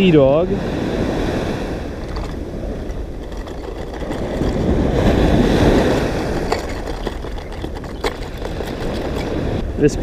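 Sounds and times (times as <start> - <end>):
ocean surf washing in: 0.0 - 6.6
wind buffeting microphone: 0.0 - 10.0.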